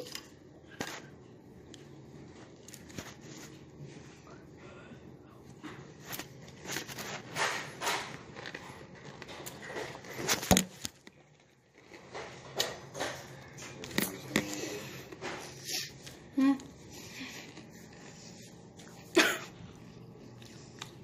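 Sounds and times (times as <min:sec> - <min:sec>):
person chewing cereal: 0:13.3 - 0:21.0.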